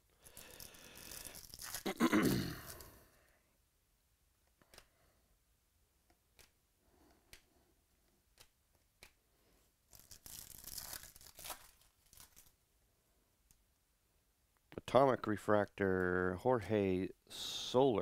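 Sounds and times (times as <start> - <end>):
wrapper tearing: 0.2 - 2.9, 9.9 - 12.6
cards clicking: 6.1 - 7.5, 8.1 - 9.2.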